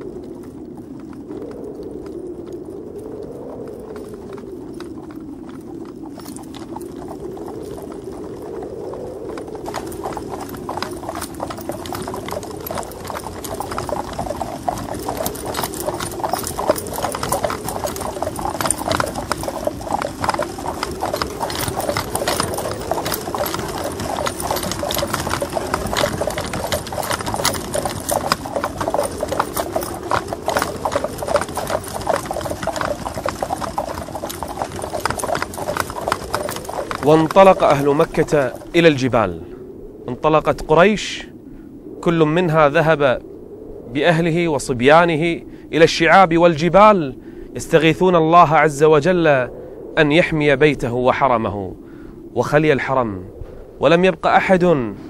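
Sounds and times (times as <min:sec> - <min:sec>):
horse hooves clattering: 0:00.0 - 0:39.0.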